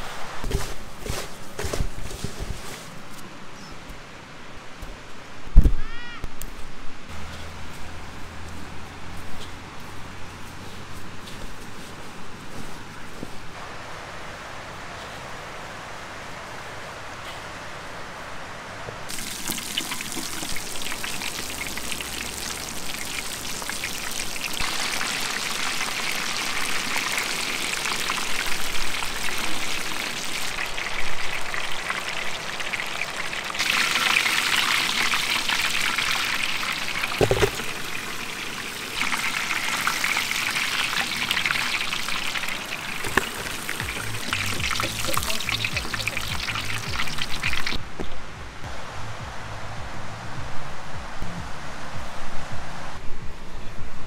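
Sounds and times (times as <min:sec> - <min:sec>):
chicken deep-frying in hot oil: 0:19.1 - 0:47.8.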